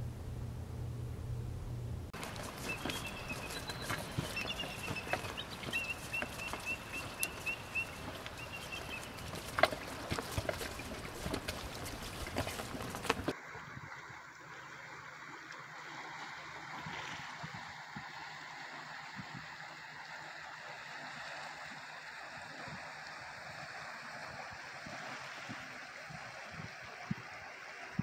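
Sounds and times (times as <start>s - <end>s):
water washing past rocks: 2.2s - 14.2s.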